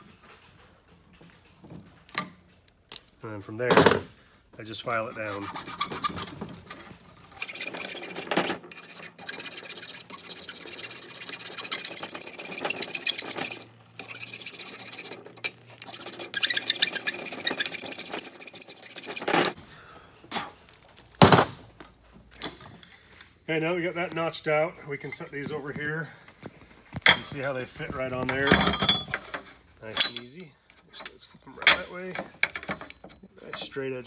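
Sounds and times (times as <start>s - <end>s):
hand file rasping on metal: 5.1s - 6.2s, 7.4s - 19.6s.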